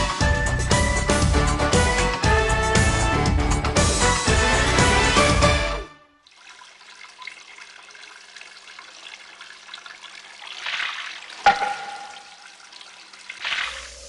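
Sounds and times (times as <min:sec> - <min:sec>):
water trickling from bamboo spout: 0:06.2 - 0:14.0
hollow bamboo knock: 0:11.5 - 0:12.3.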